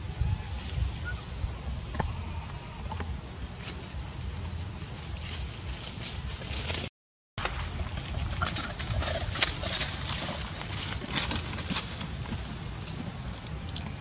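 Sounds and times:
dry leaves rustling: 0:03.4 - 0:14.0.

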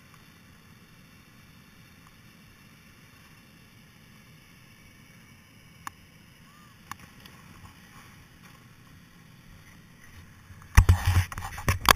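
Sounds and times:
faint ticks: 0:05.1 - 0:06.1.

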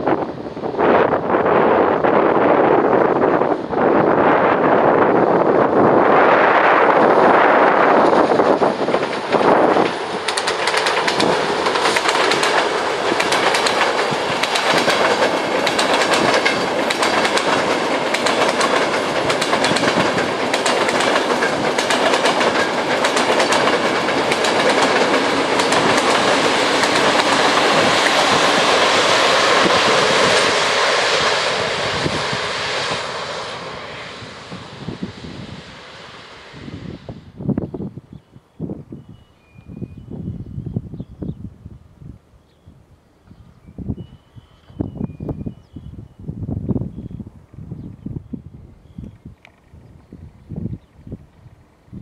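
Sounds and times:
train passing with rumble: 0:00.0 - 0:52.0
wheel clicks over rail joints: 0:10.2 - 0:27.4.

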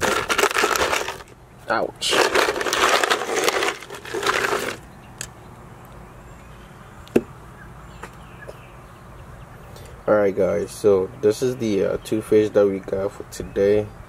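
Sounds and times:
ice cubes rattling and crunching: 0:00.0 - 0:01.4, 0:02.0 - 0:04.8.

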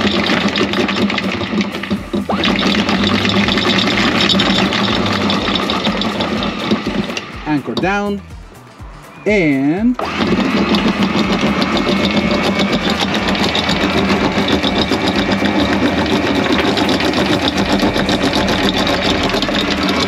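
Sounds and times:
windlass motor humming: 0:00.0 - 0:08.8, 0:09.9 - 0:20.0
anchor chain rattling: 0:10.1 - 0:20.0.

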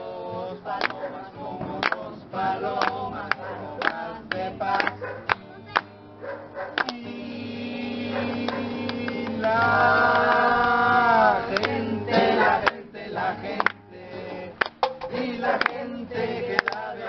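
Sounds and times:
acoustic guitar strumming: 0:00.0 - 0:17.0
man singing: 0:06.8 - 0:17.0.

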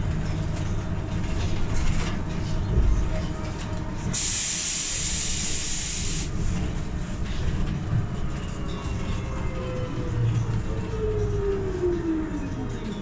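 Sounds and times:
trolleybus rumbling: 0:00.0 - 0:13.0
loud air hiss: 0:04.1 - 0:06.3.

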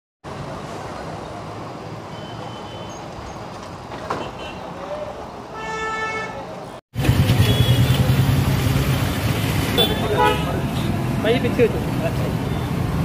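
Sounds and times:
road traffic passing: 0:00.2 - 0:13.0.

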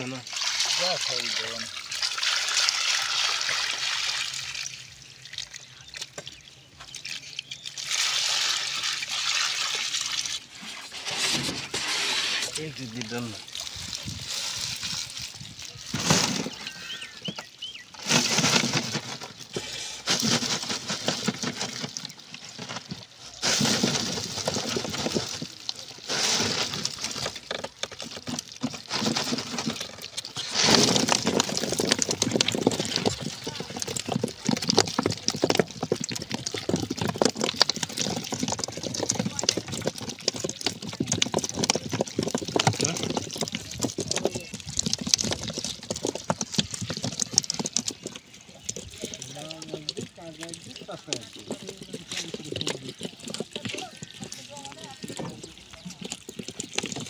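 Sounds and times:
water streaming off a net: 0:00.0 - 0:06.2, 0:07.0 - 0:17.3, 0:17.9 - 0:35.1
water dripping: 0:00.0 - 0:10.6, 0:31.4 - 0:57.0
fish spilling onto concrete: 0:00.0 - 0:57.0
fish flapping against a net: 0:17.9 - 0:57.0.

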